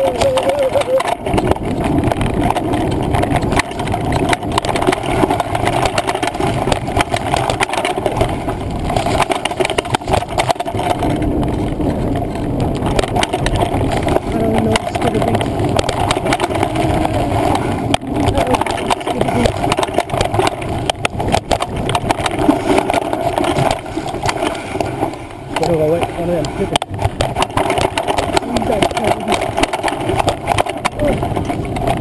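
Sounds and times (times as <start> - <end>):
bike rattling over bumps: 0.0 - 32.0
tyre and wind rumble: 0.0 - 32.0.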